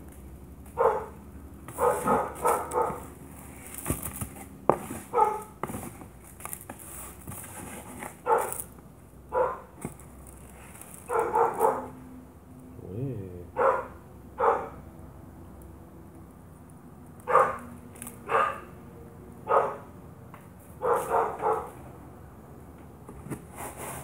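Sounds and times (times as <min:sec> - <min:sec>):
dog barking: 0:00.8 - 0:01.2, 0:01.8 - 0:03.1, 0:05.1 - 0:05.5, 0:08.2 - 0:08.6, 0:09.3 - 0:09.7, 0:11.1 - 0:12.0, 0:13.5 - 0:14.8, 0:17.2 - 0:18.7, 0:19.4 - 0:19.9, 0:20.8 - 0:21.8.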